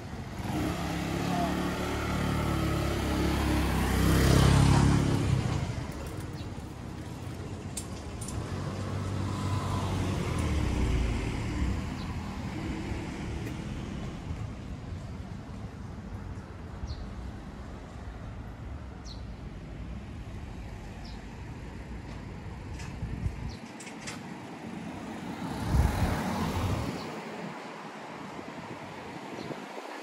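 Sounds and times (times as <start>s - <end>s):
steady traffic hum: 0.0s - 30.0s
motor vehicle passing: 0.3s - 6.5s, 8.3s - 14.3s, 24.8s - 27.3s.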